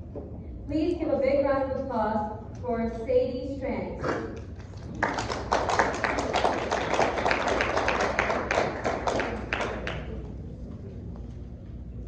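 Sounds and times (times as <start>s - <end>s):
audience applauding: 4.6s - 10.3s.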